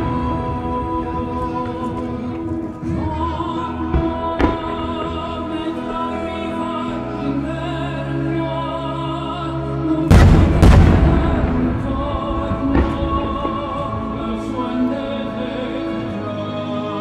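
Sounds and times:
operatic singing with accompaniment: 0.0s - 17.0s
firework cracks: 10.1s - 14.1s.

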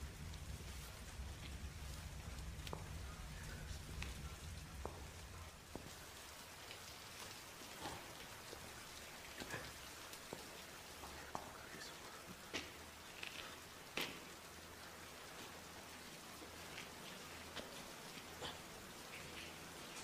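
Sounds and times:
low rumble: 0.0s - 6.5s
steady rain falling: 0.0s - 20.0s
drips and splashes: 0.2s - 20.0s.

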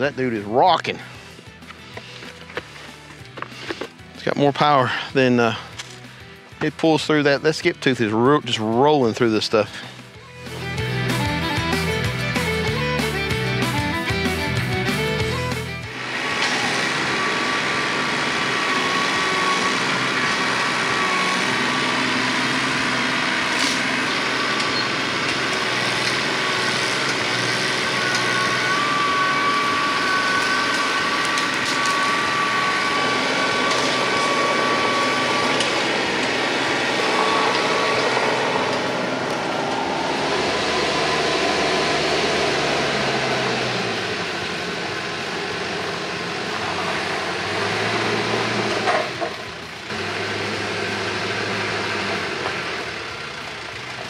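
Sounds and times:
tractor diesel engine running: 0.0s - 54.0s
high thin whine: 26.0s - 42.8s.

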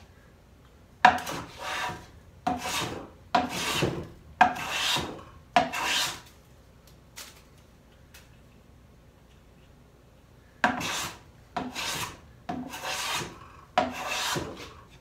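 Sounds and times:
bench plane shaving wood: 1.1s - 6.2s, 10.7s - 14.9s.

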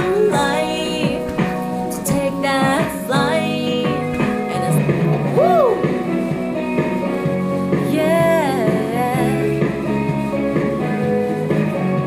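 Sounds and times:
woman singing: 0.0s - 5.8s, 7.8s - 9.8s
guitar accompaniment: 0.0s - 12.0s.

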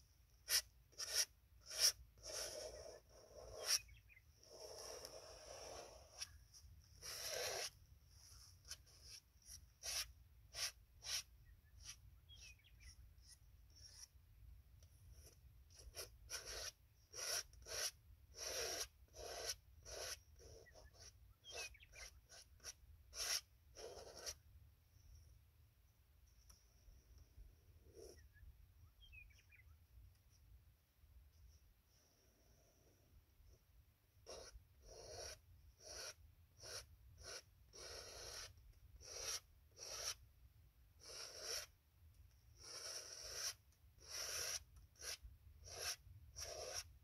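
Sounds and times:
paint scraping on canvas: 0.4s - 12.5s, 15.2s - 24.4s, 34.2s - 40.2s, 41.0s - 41.7s, 42.6s - 47.0s.

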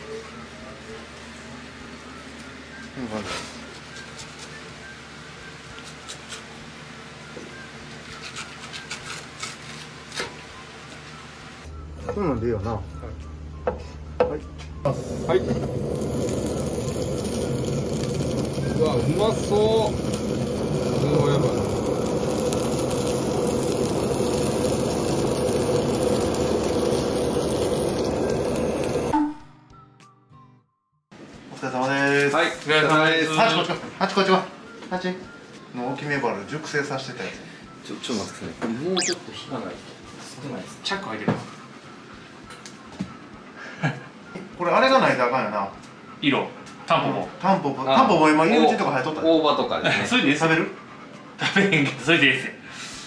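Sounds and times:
music: 0.0s - 51.9s
knife on cutting board: 8.2s - 9.9s
blowtorch hissing: 14.9s - 29.2s.

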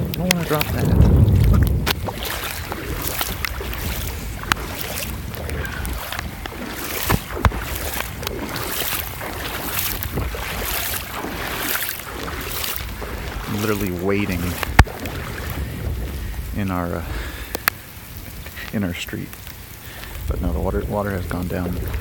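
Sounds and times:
water sloshing from wading: 0.0s - 22.0s
wind buffeting microphone: 0.0s - 22.0s.

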